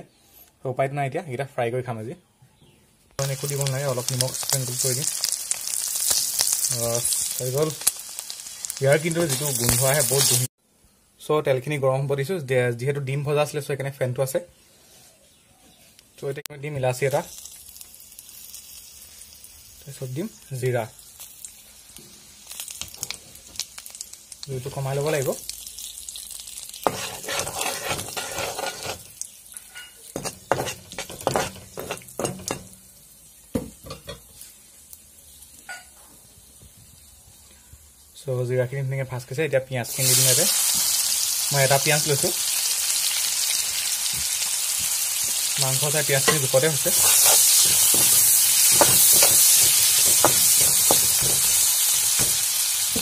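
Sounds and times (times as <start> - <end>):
spices sizzling in hot oil: 3.2 - 10.5, 16.6 - 53.0
spatula scraping a pan: 26.8 - 32.6, 46.2 - 53.0.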